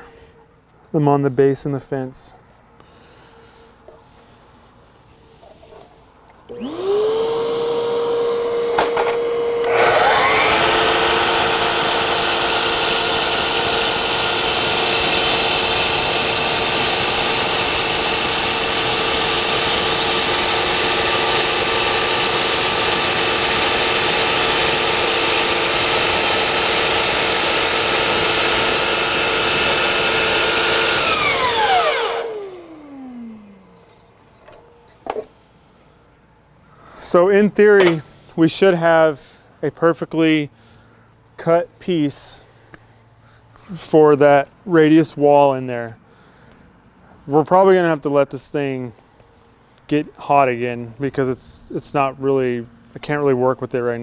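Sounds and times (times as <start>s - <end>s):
miter saw cutting moulding: 6.5s - 33.6s.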